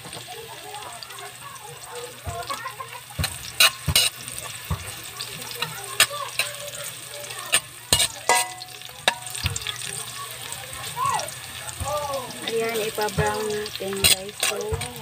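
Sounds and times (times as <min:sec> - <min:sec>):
garlic and onion sizzling in oil: 0:00.0 - 0:15.0
metal spatula scraping a pan: 0:03.2 - 0:09.9, 0:12.4 - 0:15.0.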